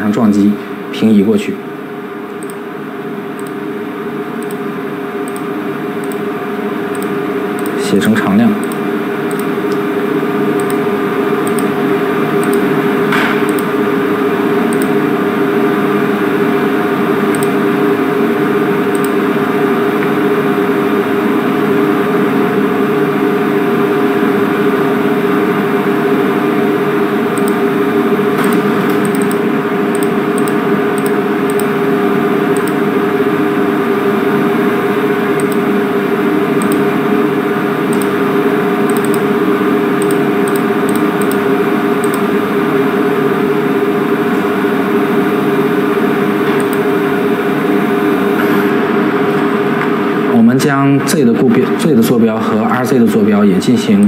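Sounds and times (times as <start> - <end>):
low machine hum: 0.0 - 54.0
keyboard and mouse clicks: 2.4 - 2.6, 3.4 - 3.6, 4.4 - 4.6, 5.3 - 6.2, 6.9 - 7.8, 8.6 - 9.8, 10.6 - 10.8, 11.4 - 11.7, 12.4 - 13.7, 17.3 - 17.6, 18.9 - 19.2, 27.4 - 27.6, 28.4 - 31.7, 32.5 - 32.8, 35.4 - 35.6, 36.6 - 36.9, 37.9 - 38.2, 38.9 - 39.3, 40.0 - 41.4, 42.0 - 42.3, 46.6 - 46.8.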